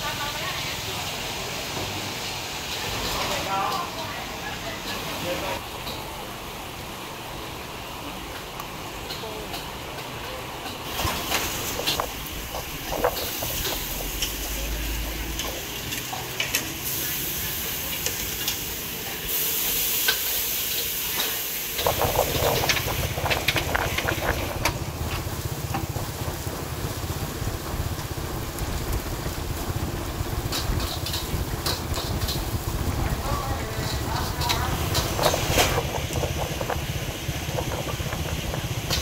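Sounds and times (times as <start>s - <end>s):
skewers sizzling on grill: 0.0s - 39.0s
low rumble: 11.1s - 15.9s, 21.8s - 39.0s.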